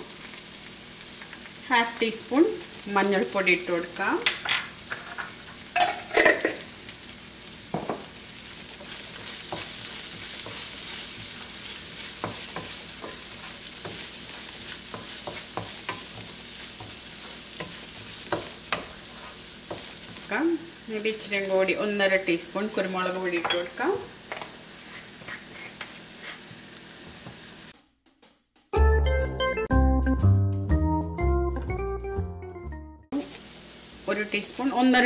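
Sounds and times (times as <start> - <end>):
onions sizzling in oil: 0.0 - 27.8, 33.1 - 35.0
wooden spatula scraping pan: 8.8 - 20.3, 23.1 - 27.4.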